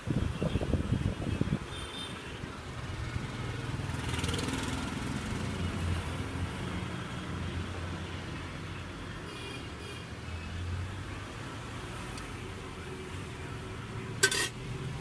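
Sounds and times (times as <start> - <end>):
hot oil sizzling: 14.2 - 14.6.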